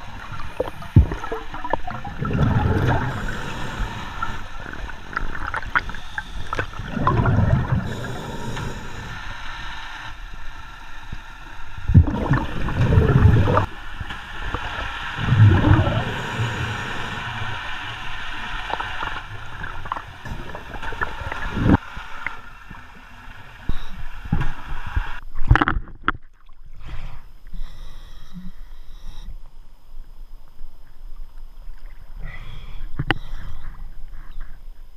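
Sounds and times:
scuba bubbles gurgling underwater: 0.0 - 9.2, 11.8 - 24.7.

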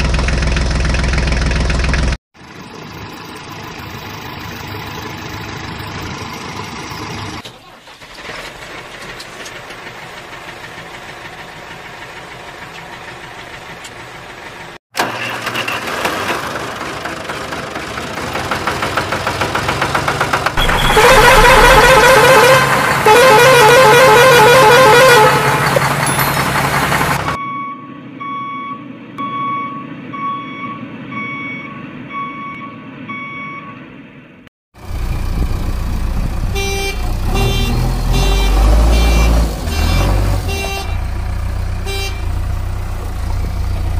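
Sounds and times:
loud low engine-like noise: 0.0 - 7.4, 8.2 - 27.4, 34.8 - 37.4
warbling vehicle horn: 20.6 - 26.1, 36.4 - 41.2, 41.8 - 42.6
evenly spaced beeps: 27.4 - 33.8.

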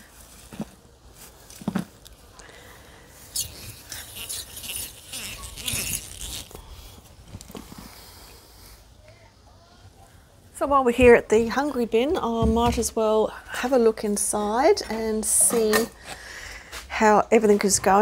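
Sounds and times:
compost crunching and rustling: 0.0 - 8.2.

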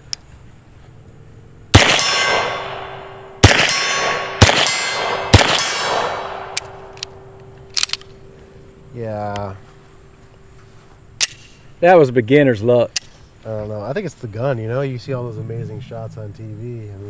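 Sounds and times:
pistol shots: 1.7 - 7.2.

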